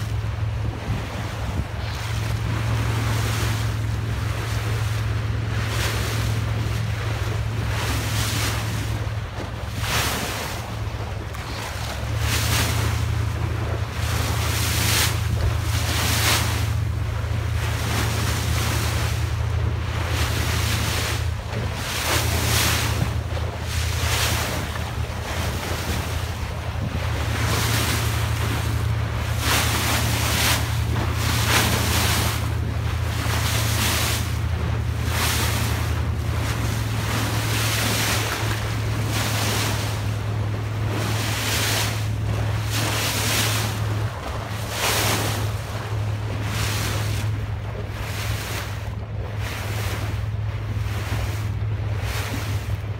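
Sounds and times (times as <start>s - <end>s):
boat engine droning: 0.0s - 52.9s
water splashing along hull: 0.0s - 52.9s
wind buffeting microphone: 0.0s - 52.9s.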